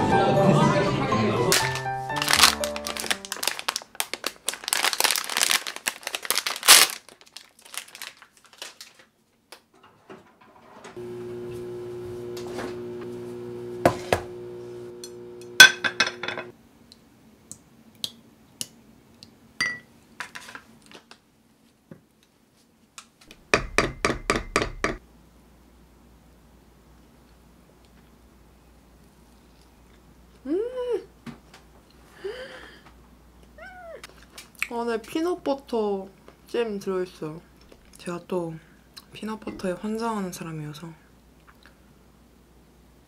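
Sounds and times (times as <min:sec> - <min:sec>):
plastic packaging crinkling: 0:01.5 - 0:09.2
kitchen items clicking and knocking: 0:15.6 - 0:16.5, 0:23.6 - 0:25.0.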